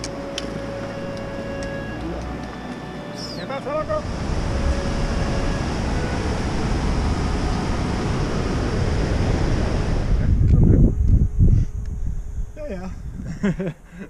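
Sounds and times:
river rushing: 0:00.0 - 0:10.2
wind rumbling on microphone: 0:00.0 - 0:14.0.

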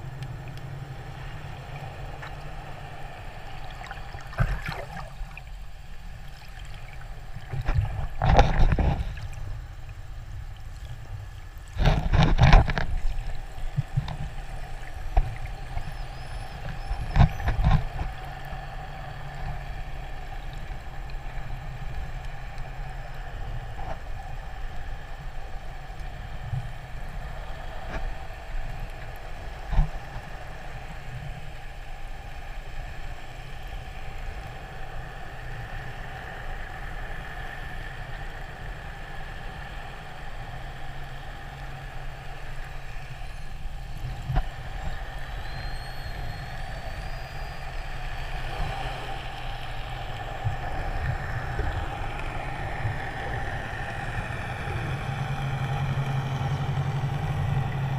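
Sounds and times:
underwater boat engine hum: 0:00.0 - 0:57.9
rushing bubbling water bursts: 0:03.8 - 0:05.4.

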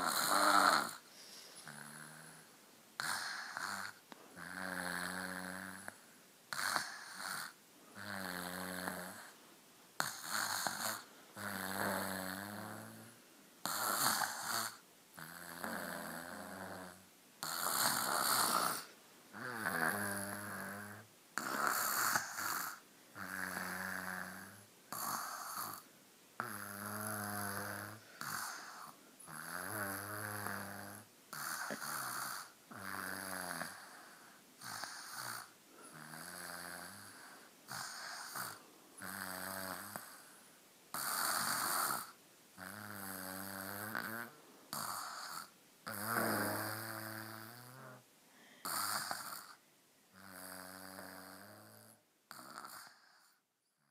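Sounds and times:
child snoring: 0:00.0 - 0:09.4, 0:10.0 - 0:53.5.

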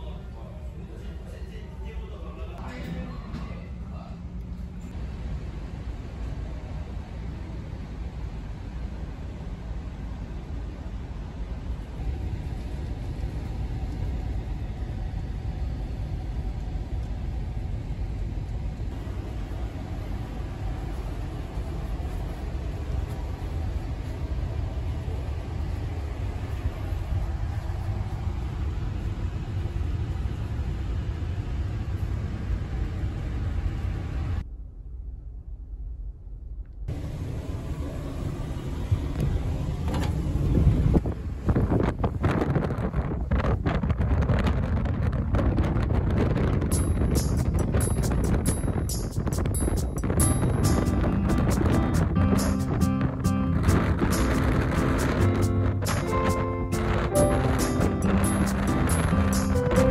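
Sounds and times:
ship engine drone: 0:00.0 - 0:43.5, 0:46.1 - 0:59.9
wind on microphone: 0:38.8 - 0:59.9.

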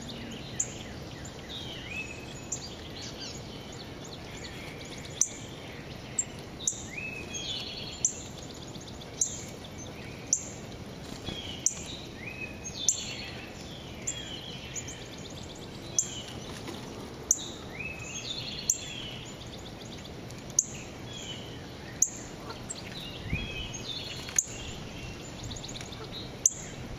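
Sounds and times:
songbirds calling and singing: 0:00.0 - 0:26.9
steady outdoor hiss: 0:00.0 - 0:26.9.

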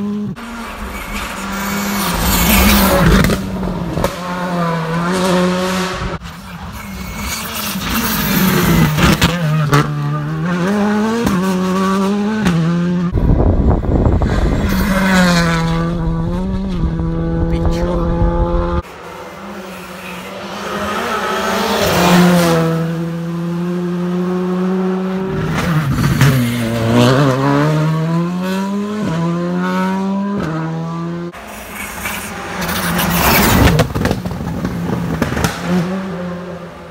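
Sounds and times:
rally car engines revving: 0:00.0 - 0:36.9.

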